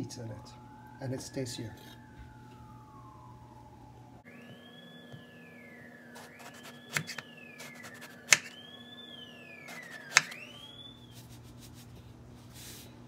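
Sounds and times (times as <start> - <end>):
siren wailing: 0.0 - 11.2
knife slicing eggplant: 9.7 - 10.4.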